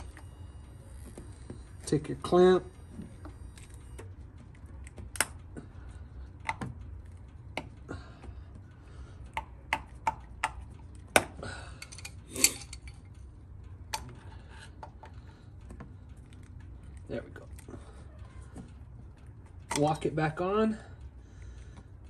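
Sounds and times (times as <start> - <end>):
low steady hum: 0.0 - 22.0
metallic clicks of hose clamp pliers: 3.6 - 7.8, 9.2 - 13.2, 19.2 - 20.6.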